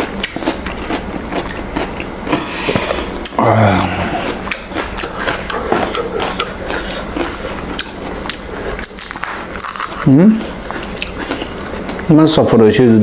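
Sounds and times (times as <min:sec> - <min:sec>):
crisp shell crackling: 0:07.2 - 0:12.1.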